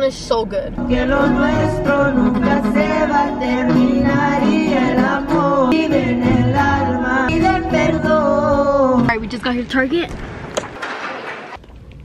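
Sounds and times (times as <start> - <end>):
woman singing: 0.8 - 9.3
steady bass line: 0.8 - 9.4.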